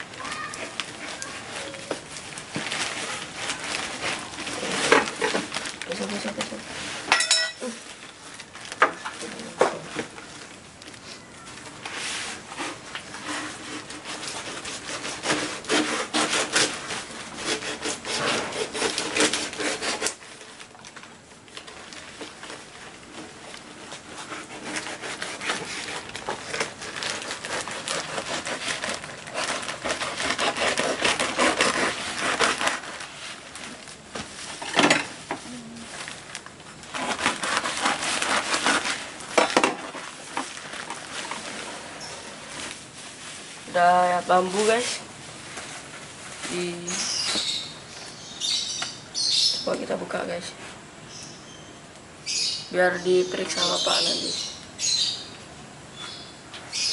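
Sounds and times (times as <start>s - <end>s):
wrapping rubbing and tearing: 0.0s - 50.8s
knife sawing through cardboard: 2.7s - 5.4s, 12.0s - 20.3s, 23.6s - 33.4s, 36.9s - 40.1s.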